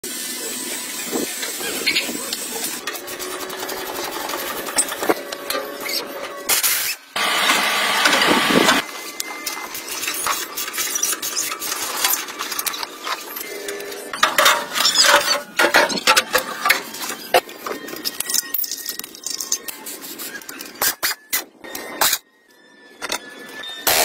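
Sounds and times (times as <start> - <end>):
tools clicking and rattling on metal: 14.1 - 17.4.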